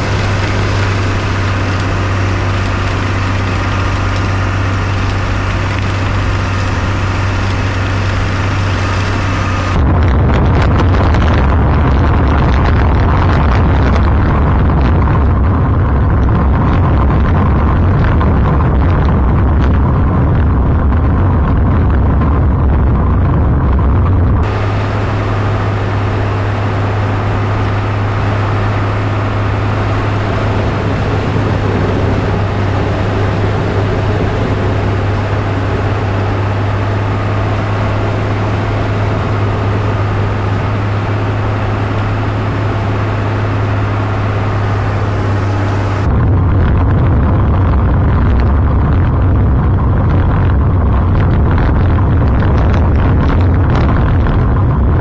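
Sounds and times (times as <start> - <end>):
blade plowing snow: 0.0 - 9.8, 24.4 - 46.2
snowcat engine hum: 0.0 - 55.0.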